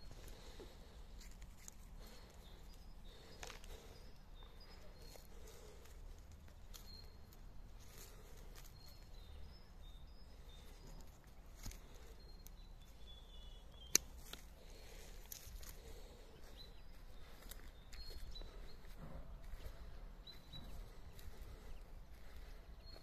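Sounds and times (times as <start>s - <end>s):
bird chirps: 0.0s - 23.0s
faint outdoor ambience: 0.0s - 23.0s
pruning shears snipping branch: 13.9s - 14.5s.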